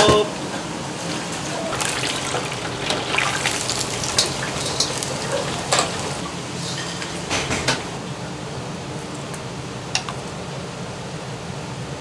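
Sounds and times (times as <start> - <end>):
oil sizzling and bubbling: 0.9 - 10.4.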